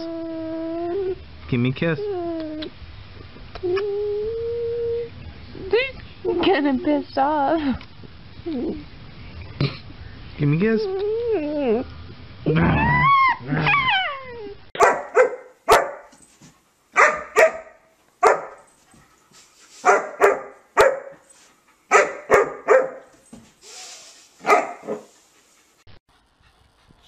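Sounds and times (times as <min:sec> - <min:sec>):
dog whining: 0:12.5 - 0:15.4
puppy barking: 0:14.8 - 0:16.1, 0:17.0 - 0:18.7, 0:19.8 - 0:21.2, 0:21.9 - 0:23.1, 0:24.4 - 0:25.1.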